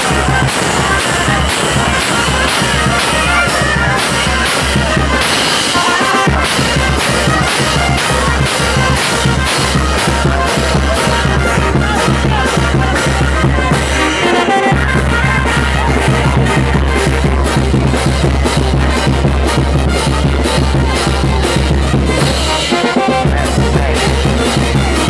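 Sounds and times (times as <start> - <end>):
cymbals clashing: 0.0 - 16.4
bass drum beating: 0.0 - 22.6, 23.2 - 25.0
low bass brass notes: 0.0 - 25.0
trumpets playing: 0.0 - 25.0.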